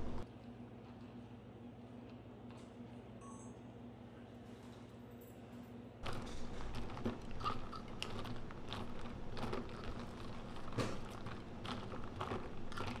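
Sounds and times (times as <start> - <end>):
ice cubes clattering in cup: 6.0 - 13.0.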